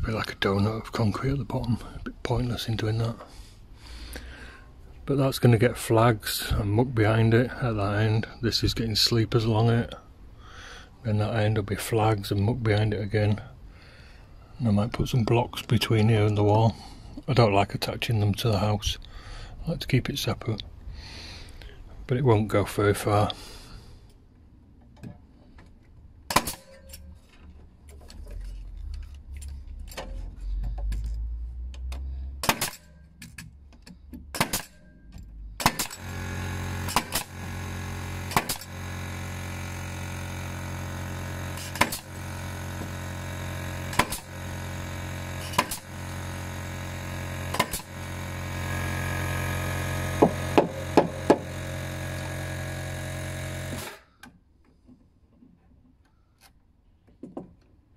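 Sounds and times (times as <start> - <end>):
pneumatic nailer firing: 26.3 - 27.2, 32.4 - 54.3
steady machine hum: 34.3 - 54.1.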